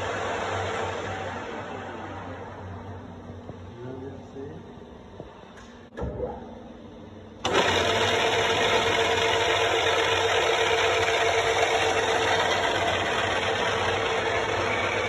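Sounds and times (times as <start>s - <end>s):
mid-pitched machine whine: 0.0s - 15.0s
milling machine humming: 7.4s - 15.0s.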